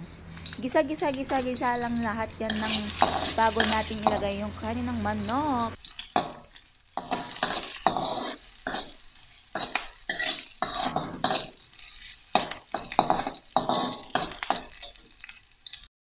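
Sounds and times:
food sauteing in hot oil: 0:00.0 - 0:15.9
metal spatula scraping a wok: 0:02.4 - 0:04.3, 0:07.0 - 0:15.2.

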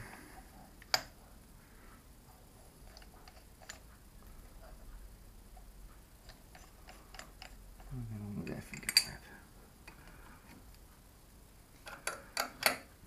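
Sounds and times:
light metallic clicks and taps: 0:11.8 - 0:12.9.

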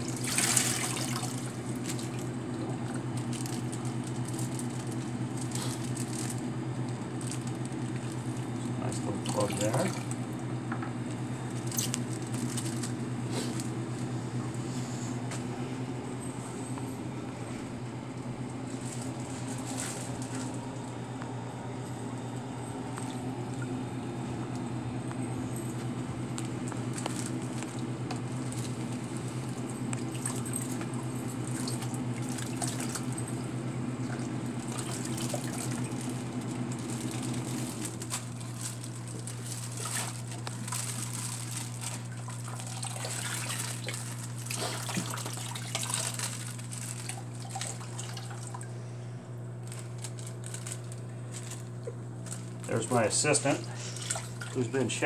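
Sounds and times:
water splashing in a bucket: 0:00.0 - 0:06.3, 0:07.2 - 0:10.2, 0:27.0 - 0:33.4, 0:34.0 - 0:48.6, 0:52.6 - 0:54.7
low equipment hum: 0:00.0 - 0:55.0
plastic bag handling clicks: 0:25.8 - 0:29.1, 0:34.6 - 0:42.7, 0:43.5 - 0:47.8, 0:49.6 - 0:52.7.

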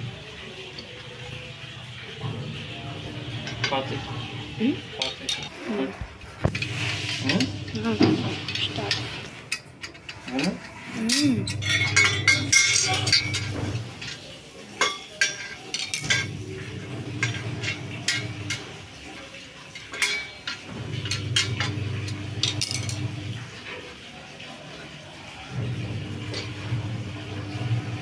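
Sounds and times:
metal parts clinking: 0:06.5 - 0:16.4, 0:19.8 - 0:21.8, 0:22.4 - 0:23.1.

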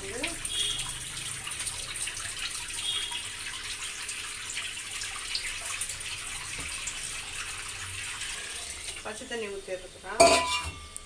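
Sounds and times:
tap running into sink: 0:06.4 - 0:07.0.

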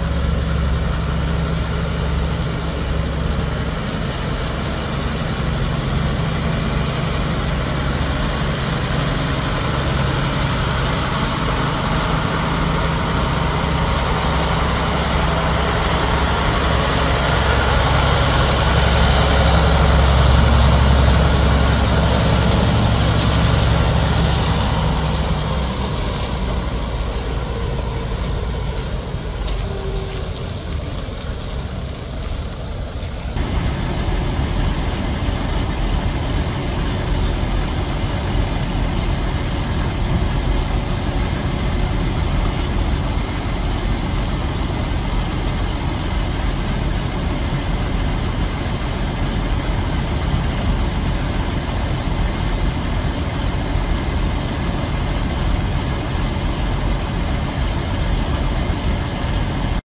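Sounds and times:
tractor diesel engine running: 0:00.0 - 0:59.8.

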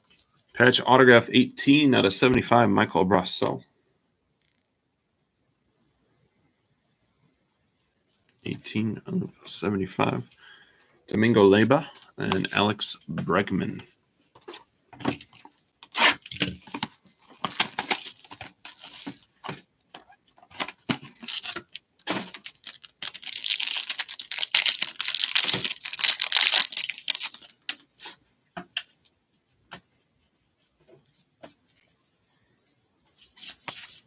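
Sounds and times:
foil wrapper crinkling and tearing: 0:17.4 - 0:19.2, 0:20.6 - 0:27.8.

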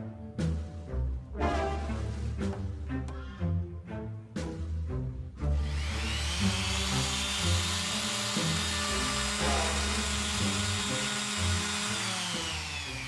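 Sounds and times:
orbital sander whining: 0:05.5 - 0:13.0.

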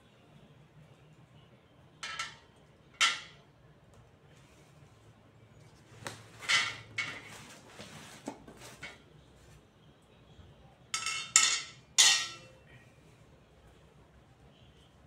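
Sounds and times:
metal frame clanking on tile: 0:02.0 - 0:03.4, 0:06.4 - 0:07.3, 0:11.0 - 0:12.5
cardboard and plastic rustling: 0:07.1 - 0:09.6.

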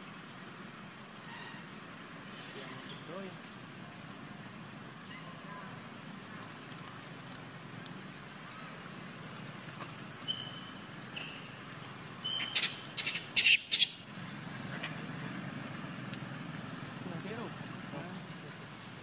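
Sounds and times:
animal chirps: 0:10.2 - 0:11.6, 0:12.2 - 0:14.0.

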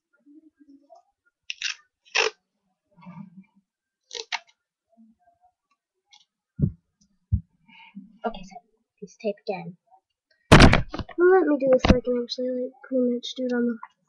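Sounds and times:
tape and paper clicks and snips: 0:01.5 - 0:02.4, 0:04.1 - 0:04.5.

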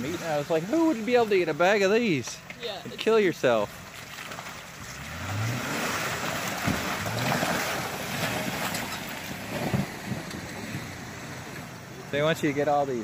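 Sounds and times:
tyres splashing through mud: 0:00.0 - 0:13.0
car engine revving: 0:04.3 - 0:13.0.

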